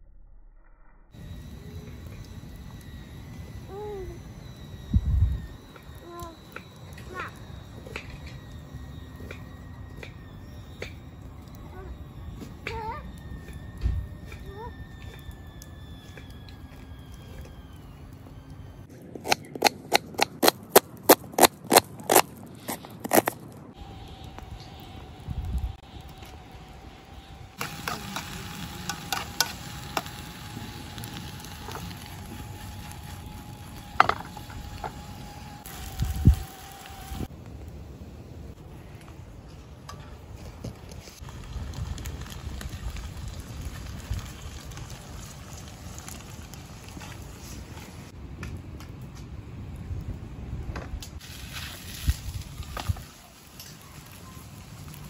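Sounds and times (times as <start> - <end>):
wood fire crackling and popping: 1.2 - 37.8, 38.9 - 55.0
rice poured into a pan: 51.2 - 54.2.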